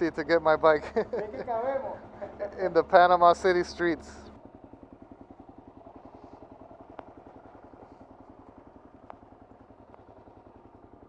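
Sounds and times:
motorcycle engine pulsing: 0.0 - 11.0
faint clicks: 9.0 - 10.1.

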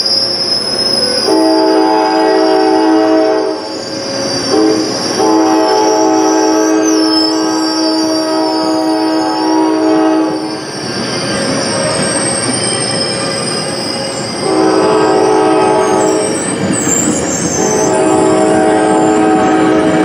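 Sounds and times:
train coaches rolling past: 0.0 - 20.0
wheels squealing: 0.0 - 20.0
train horn blasts: 1.2 - 3.7, 4.4 - 10.5, 14.4 - 16.4, 17.5 - 20.0.

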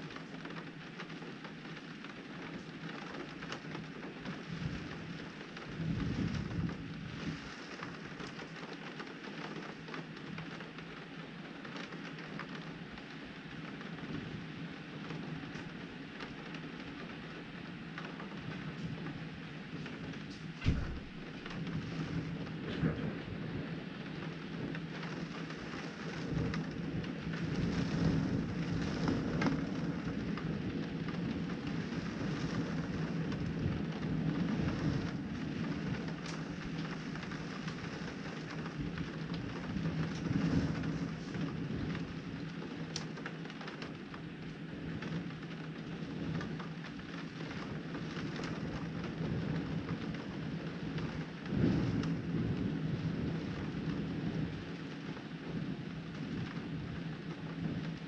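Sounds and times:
heavy rain: 0.0 - 58.0
raindrops ticking on window: 0.0 - 58.0
thunder rumbling: 18.2 - 43.0.

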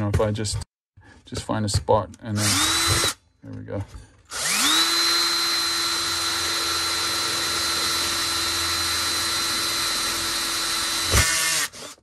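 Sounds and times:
drill bit boring into steel can: 2.4 - 3.2, 4.3 - 12.0
power drill whining: 2.4 - 3.2, 4.3 - 12.0.

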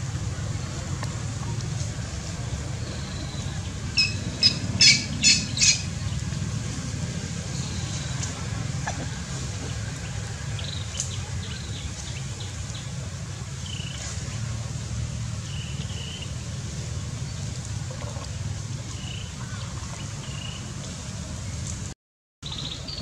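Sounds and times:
high arched animal calls: 4.0 - 5.9.

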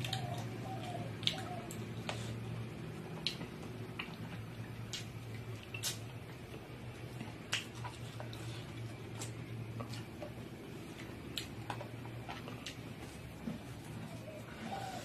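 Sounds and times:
wet lip smacks while chewing: 3.2 - 6.2.

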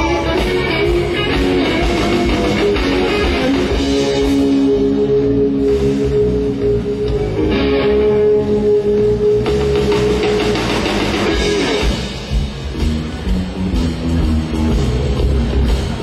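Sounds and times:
blues band playing: 0.0 - 16.0
electric guitar lead: 0.0 - 16.0.

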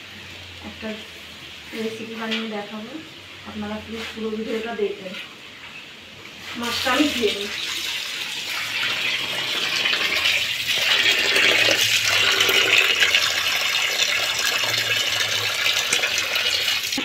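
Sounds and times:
tap water pouring into bowl: 7.5 - 17.0.

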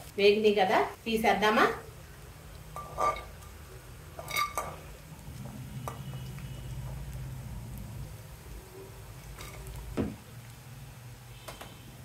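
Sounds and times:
spatula scraping a metal pan: 2.8 - 3.3.

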